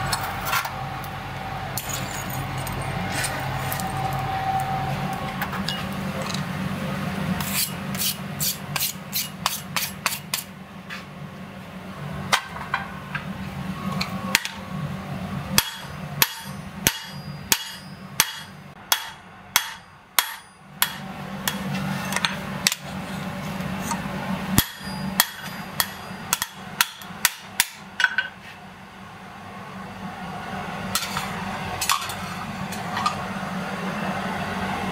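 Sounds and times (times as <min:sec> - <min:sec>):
steady low hum: 0:00.0 - 0:34.9
hammer striking steel on anvil: 0:07.4 - 0:10.5, 0:15.6 - 0:22.8, 0:24.5 - 0:28.3.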